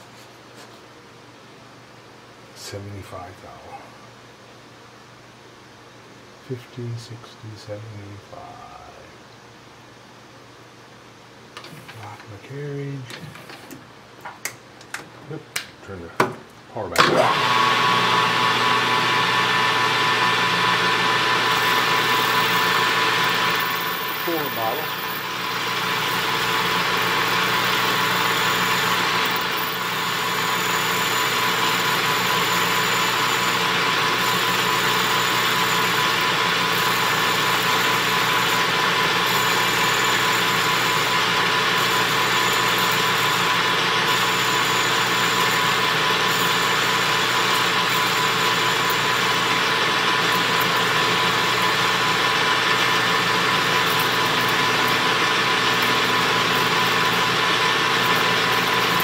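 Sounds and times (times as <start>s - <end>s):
metal lathe humming and whining: 17.0s - 59.0s.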